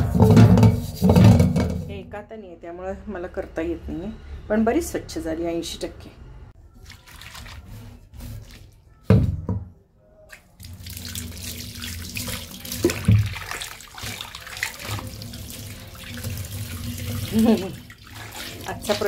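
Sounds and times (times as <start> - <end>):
pan knocking in sink: 0.0 - 2.0, 12.3 - 15.2
tap water running into sink: 10.6 - 19.0.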